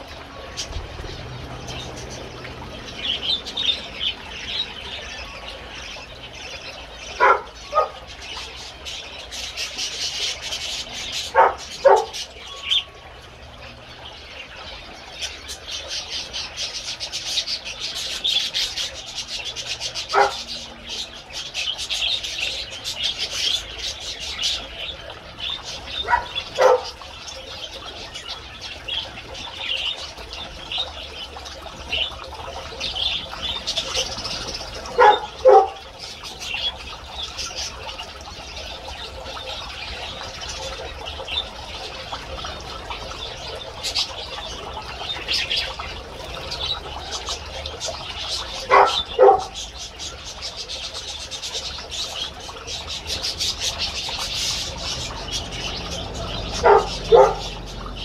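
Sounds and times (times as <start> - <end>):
birds chirping: 0.0 - 58.0.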